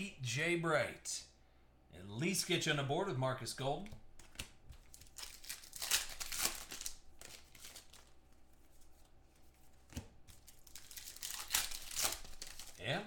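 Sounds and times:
card pack wrapper crinkling and tearing: 0:04.2 - 0:08.2, 0:10.3 - 0:12.8.

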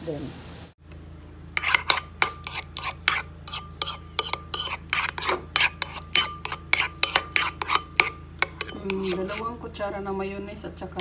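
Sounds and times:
spoon clinking against bowl: 0:01.6 - 0:09.5
spoon scraping ceramic bowl: 0:01.6 - 0:09.6.

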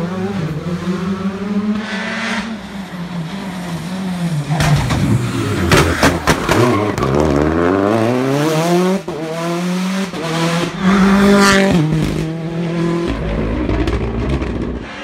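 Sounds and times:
rally car passing at speed: 0:00.0 - 0:15.0
rally car accelerating hard: 0:03.2 - 0:15.0.

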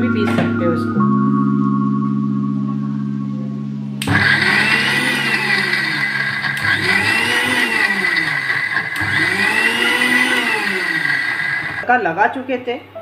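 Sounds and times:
mixer-grinder motor running: 0:04.0 - 0:11.9.

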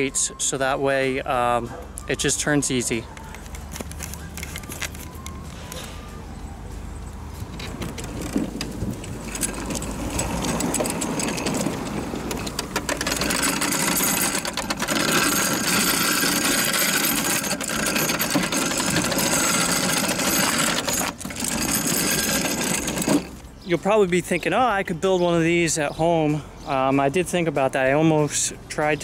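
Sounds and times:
mower roller rattling on asphalt: 0:07.6 - 0:23.7.

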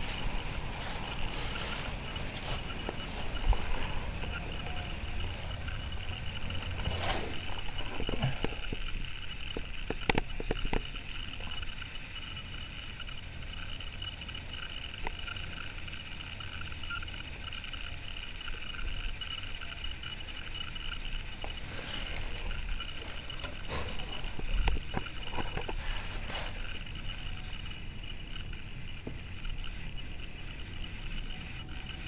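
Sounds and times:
sharp clicks and knocks: 0:06.4 - 0:11.0
microphone handling rumble: 0:21.4 - 0:26.8.

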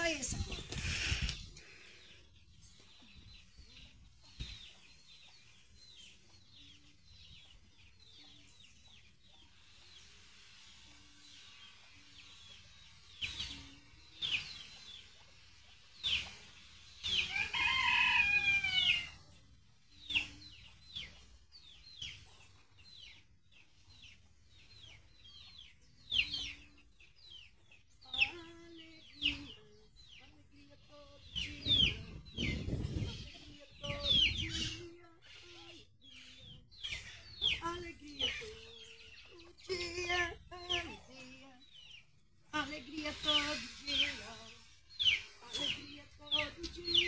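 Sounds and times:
rooster crowing: 0:17.3 - 0:19.1.

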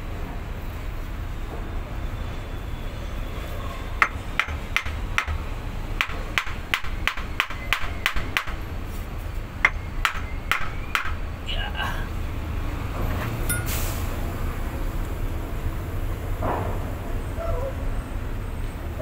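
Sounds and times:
sharp metallic clicks: 0:04.0 - 0:08.7.

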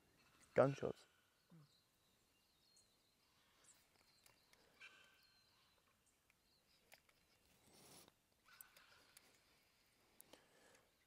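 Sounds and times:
faint bird chirps: 0:00.0 - 0:09.9.

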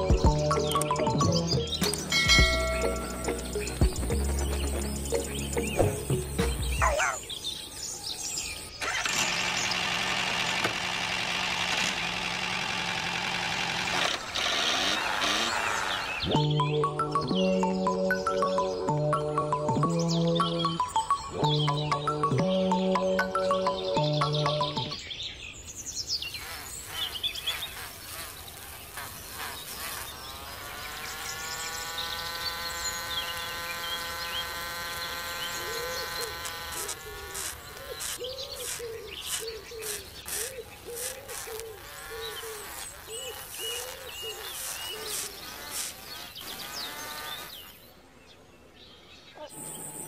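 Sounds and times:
small electric motor whining: 0:08.7 - 0:16.3, 0:26.3 - 0:47.9
blade grinding on wheel: 0:08.8 - 0:16.2, 0:26.3 - 0:47.9.

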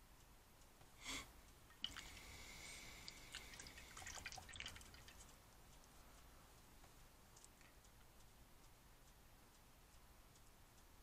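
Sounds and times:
brush rinsed in water cup: 0:01.7 - 0:02.4, 0:03.0 - 0:05.3.

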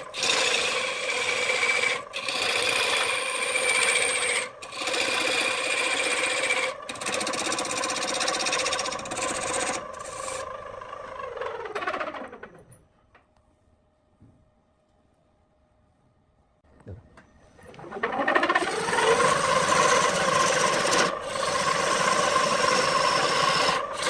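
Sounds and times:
lathe motor hum: 0:00.0 - 0:12.6, 0:17.8 - 0:24.0
wood lathe tool scraping: 0:00.0 - 0:12.7, 0:17.7 - 0:24.0.

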